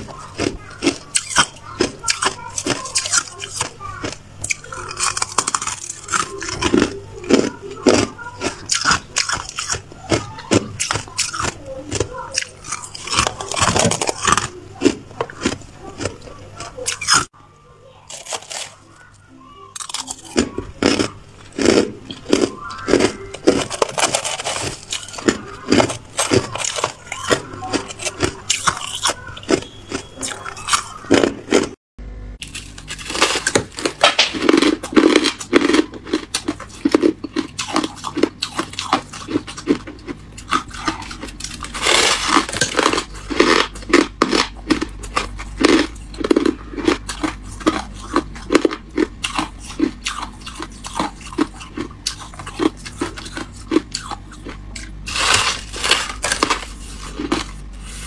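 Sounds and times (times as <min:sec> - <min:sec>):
crunchy chewing of frost: 0:00.0 - 0:31.8, 0:32.4 - 0:58.0
spoon scraping ice: 0:22.9 - 0:31.0.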